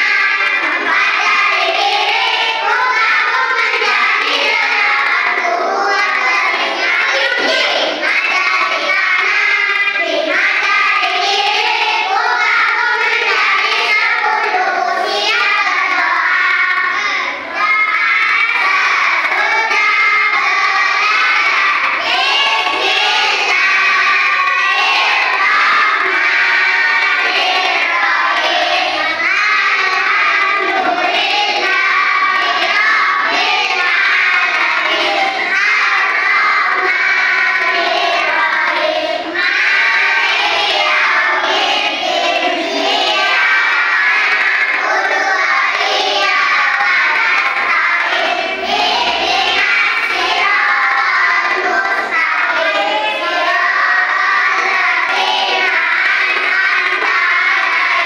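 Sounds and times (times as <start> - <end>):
children singing together: 0.0 - 58.0.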